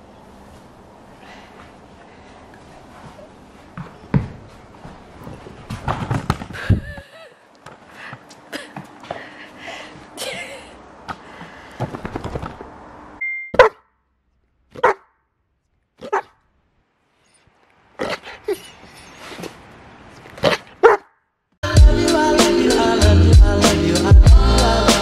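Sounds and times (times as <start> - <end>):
shuffling and rustling: 0.3 - 7.0, 11.0 - 12.9
dog barking: 13.6 - 13.8, 14.7 - 15.1, 16.0 - 16.4, 20.4 - 21.1.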